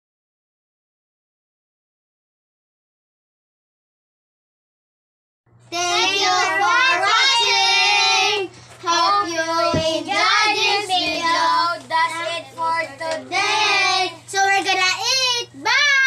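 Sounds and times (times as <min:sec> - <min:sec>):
children singing chanted phrases: 0:05.8 - 0:14.3.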